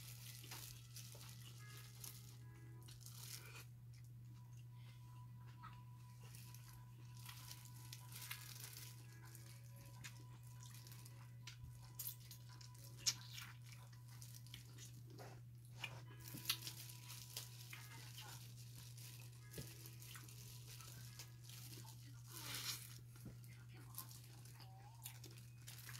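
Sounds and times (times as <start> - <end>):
small clicks and crackles: 0.0 - 3.6, 16.2 - 25.9
plastic gloves crinkling: 0.0 - 3.7, 6.1 - 15.2, 15.8 - 25.9
low steady hum: 0.0 - 25.9
chewing: 2.9 - 25.9.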